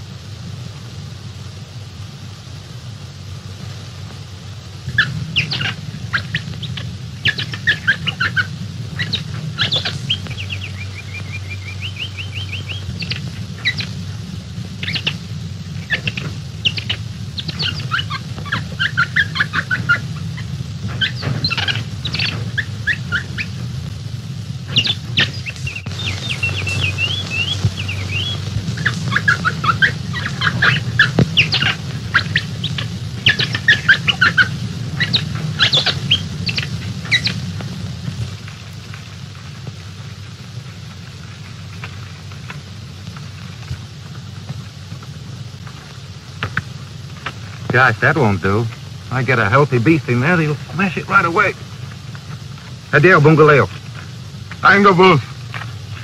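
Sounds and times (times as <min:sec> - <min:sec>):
low hum of old film sound: 0:00.0 - 0:56.0
quick whistled bird notes: 0:04.9 - 0:14.0, 0:15.8 - 0:23.6, 0:24.7 - 0:37.4
bird chirps and trills: 0:04.9 - 0:23.8, 0:24.6 - 0:37.6.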